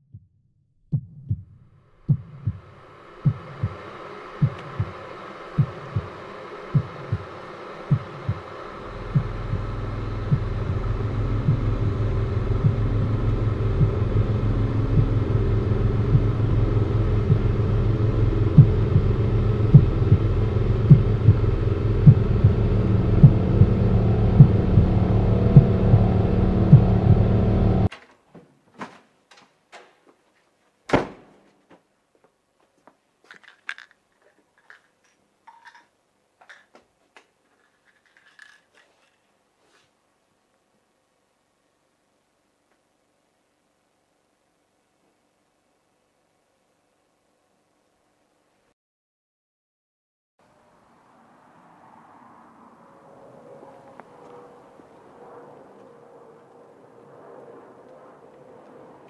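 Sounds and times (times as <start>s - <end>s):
low heartbeat-like thumps: 0.0s - 5.0s, 5.6s - 7.3s, 7.9s - 27.9s
low throbbing drone: 1.0s - 27.9s, 52.3s - 59.0s.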